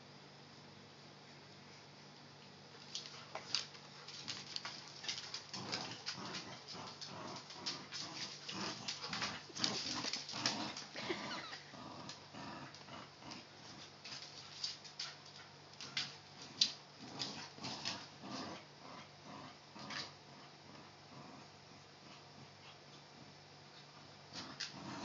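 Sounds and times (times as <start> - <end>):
claws scuffling on hardwood floor: 2.8 - 11.0
dogs growling playfully: 3.0 - 25.0.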